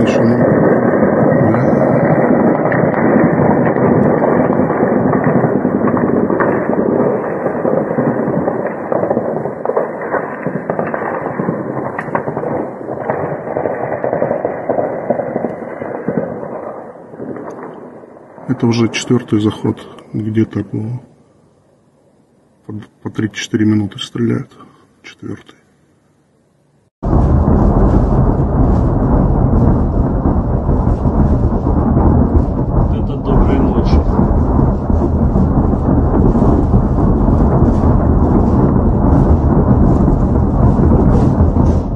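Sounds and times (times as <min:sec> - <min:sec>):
distant heavy weapons fire: 0:00.0 - 0:18.5, 0:27.0 - 0:41.9
rocket artillery barrage rumbling: 0:00.0 - 0:21.1, 0:27.0 - 0:41.9.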